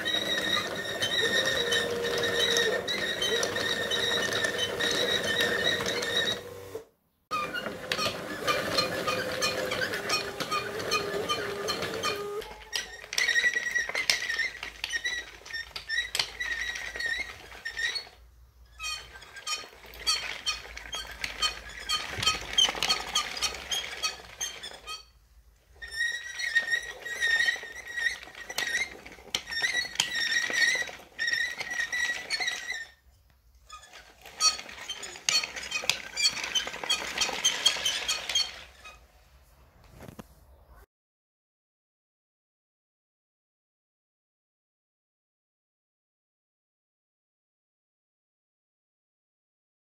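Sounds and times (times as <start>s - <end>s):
wooden track links clicking: 7.4s - 18.1s.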